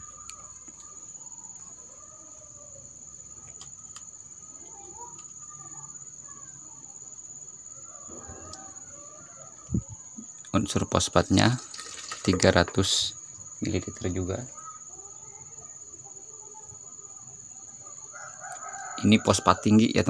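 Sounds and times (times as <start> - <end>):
faint distant bird calls: 0.0 - 20.0
high-pitched insect drone: 0.0 - 20.0.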